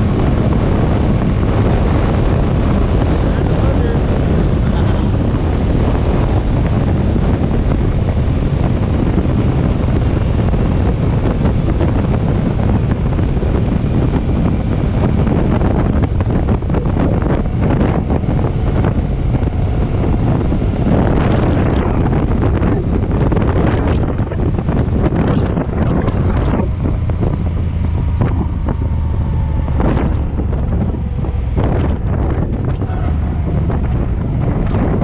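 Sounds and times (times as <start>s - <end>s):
motorcycle engine: 0.0s - 35.0s
road noise: 0.0s - 35.0s
wind buffeting microphone: 0.0s - 35.0s.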